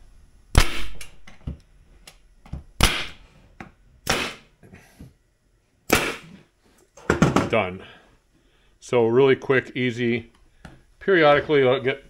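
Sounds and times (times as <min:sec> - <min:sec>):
nail gun firing: 0:00.5 - 0:01.1, 0:02.8 - 0:03.2, 0:04.0 - 0:04.5, 0:05.9 - 0:06.3.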